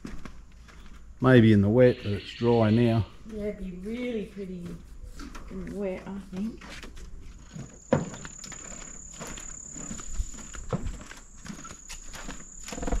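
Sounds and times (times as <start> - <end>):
footsteps on metal grate: 0.0 - 1.2, 3.8 - 13.0
high-pitched insect drone: 7.5 - 13.0.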